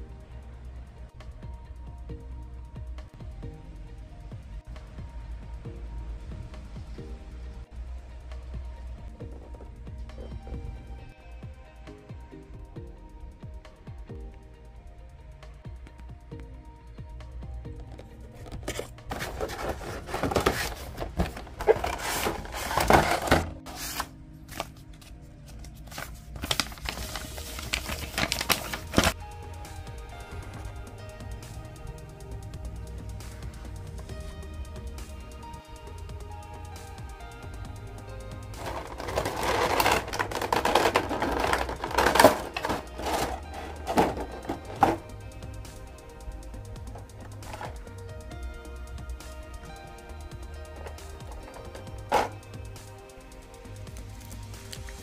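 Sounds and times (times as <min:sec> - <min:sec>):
plastic tray scraping and crackling: 0:18.3 - 0:24.7, 0:26.0 - 0:29.2, 0:38.6 - 0:45.0, 0:47.4 - 0:47.8, 0:51.3 - 0:52.3
paper sheet rustling: 0:18.3 - 0:29.2, 0:38.6 - 0:45.0, 0:47.4 - 0:47.8, 0:51.4 - 0:52.3
cardboard box opened: 0:18.4 - 0:24.7, 0:25.9 - 0:29.2, 0:38.6 - 0:45.0
plastic packaging crinkling: 0:18.4 - 0:24.9, 0:25.5 - 0:29.2, 0:38.6 - 0:45.0.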